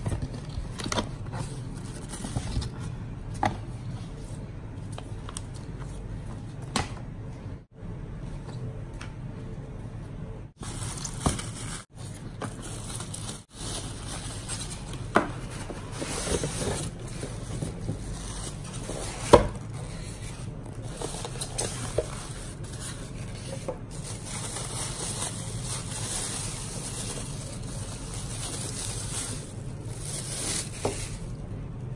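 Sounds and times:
plastic rustling: 10.6s - 31.5s.

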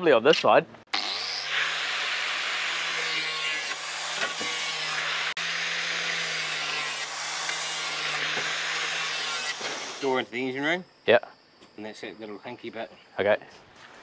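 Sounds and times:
angle grinder cutting: 0.9s - 10.3s.

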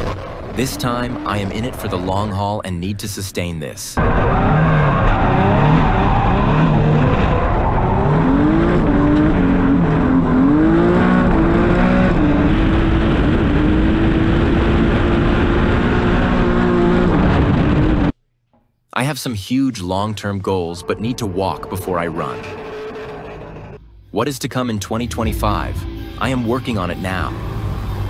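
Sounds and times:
car engine revving: 0.0s - 2.4s, 4.0s - 18.2s, 20.6s - 23.8s
tires squealing: 4.0s - 12.6s, 20.5s - 23.8s.

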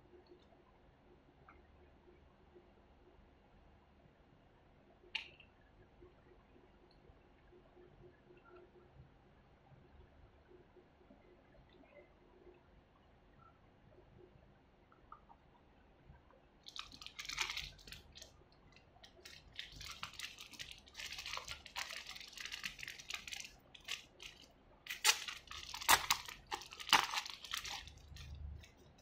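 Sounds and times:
plastic film crinkling: 16.6s - 29.0s.

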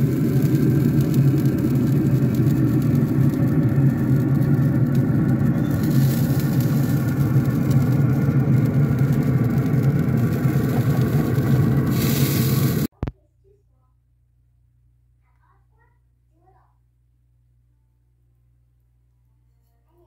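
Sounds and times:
grill fan hum: 0.0s - 12.9s
hiss: 5.7s - 7.2s, 10.3s - 12.9s.

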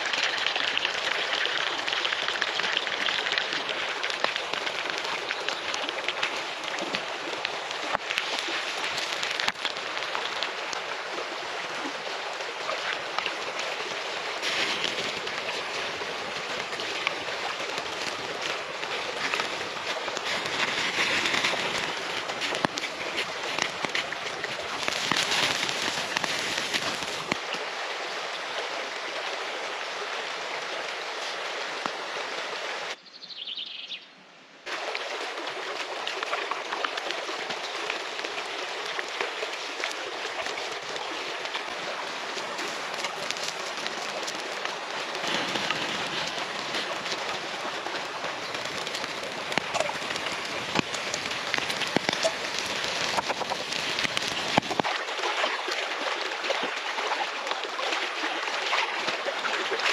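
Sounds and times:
stream rushing: 0.0s - 33.0s, 34.6s - 59.9s
wood fire crackling: 1.8s - 10.9s, 12.8s - 27.4s, 37.4s - 55.0s
hot oil sizzling: 24.7s - 27.4s, 48.0s - 54.9s
small bird chirping: 33.0s - 34.1s.

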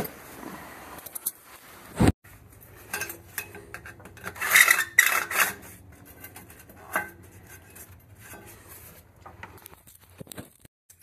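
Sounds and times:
hand tool scraping metal pipe: 2.4s - 9.6s.

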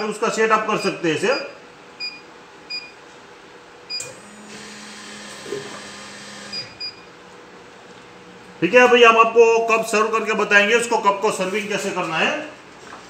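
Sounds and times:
vending machine humming and hissing: 0.0s - 9.1s.

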